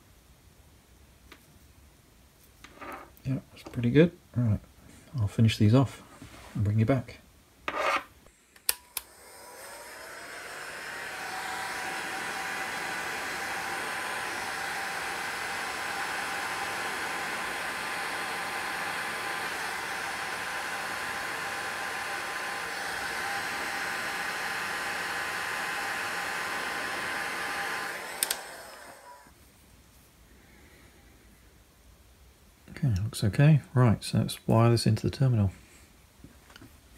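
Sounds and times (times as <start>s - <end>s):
heat gun fan blowing with whine: 8.3s - 29.4s
heat gun switch click: 8.6s - 9.1s, 28.2s - 28.5s.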